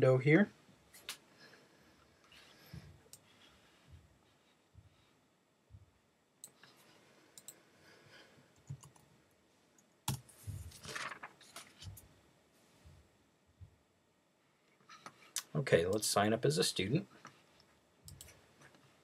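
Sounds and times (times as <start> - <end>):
computer mouse clicks: 7.4 - 7.6, 18.1 - 18.4
keyboard typing: 8.6 - 9.1.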